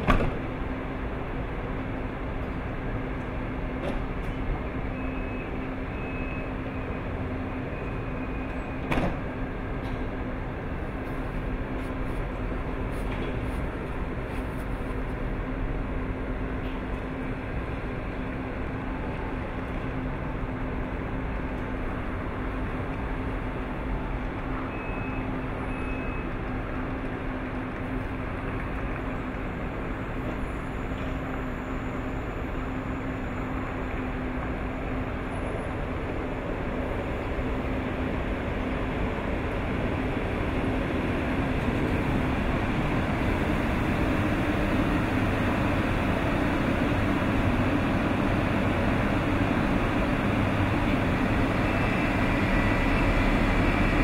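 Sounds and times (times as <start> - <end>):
train humming: 26.2 - 54.0.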